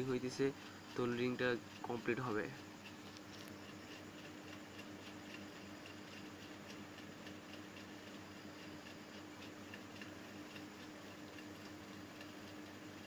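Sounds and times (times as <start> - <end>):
faint regular ticks: 0.0 - 13.0.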